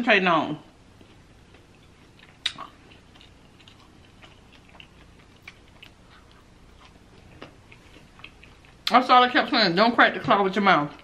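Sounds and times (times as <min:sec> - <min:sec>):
person chewing with mouth clicks: 0:01.0 - 0:08.9.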